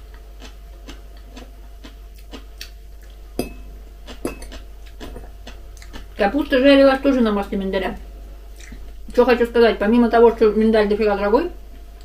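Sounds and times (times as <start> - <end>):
soft eating clicks: 0.0 - 3.2, 4.0 - 6.3
fork clinking against glass bowl: 3.4 - 3.6, 4.2 - 4.6.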